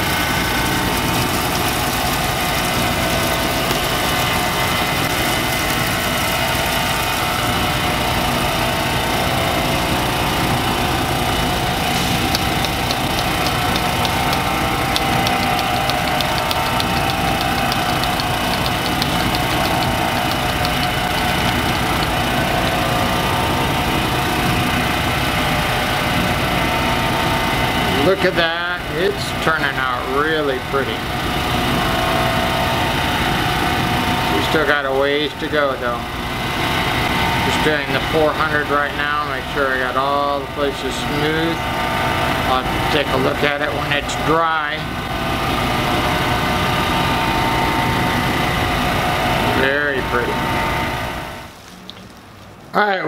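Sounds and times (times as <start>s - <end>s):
polishing machine motor humming: 10.0s - 24.2s
fast light ticks: 12.3s - 22.4s.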